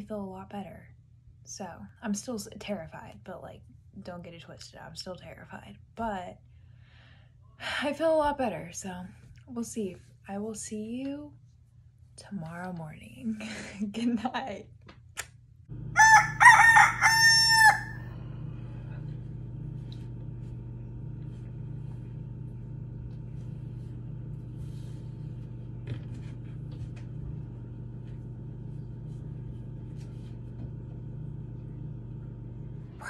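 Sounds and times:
steady low hum: 15.6 - 33.0
rooster crowing: 16.0 - 18.1.

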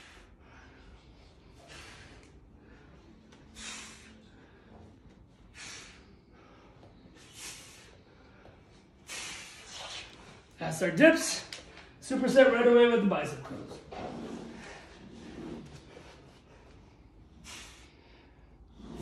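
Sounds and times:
man breathing out hard: 0.0 - 9.8, 16.6 - 18.7.

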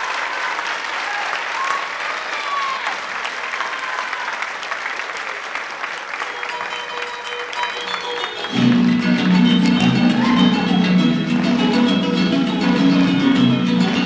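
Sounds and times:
voices cheering: 0.0 - 4.6, 9.8 - 11.0
audience applauding: 0.0 - 11.8.

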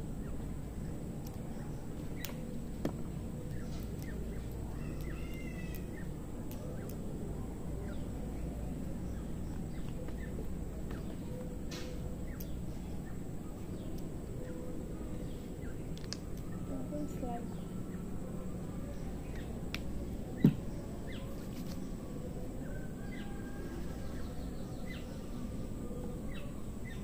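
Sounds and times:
birds calling: 0.0 - 27.0
outdoor background noise: 0.0 - 27.0
faint sharp clicks: 2.2 - 2.4, 3.5 - 7.0, 15.9 - 16.5, 19.3 - 19.9.

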